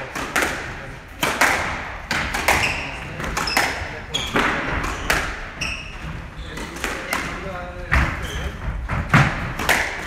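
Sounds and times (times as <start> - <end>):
squash ball knocking off rackets and walls: 0.0 - 10.0
shoes squeaking on wooden floor: 2.6 - 6.8, 7.9 - 9.1.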